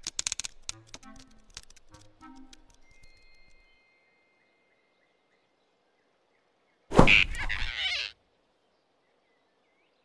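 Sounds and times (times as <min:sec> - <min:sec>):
thump and swish sound effect: 0:06.9 - 0:07.4.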